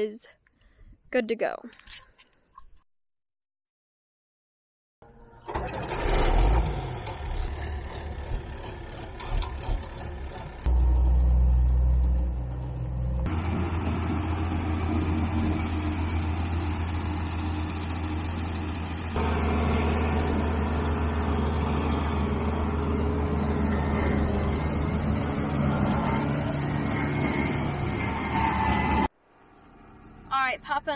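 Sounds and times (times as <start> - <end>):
tractor engine running: 5.3 - 28.8.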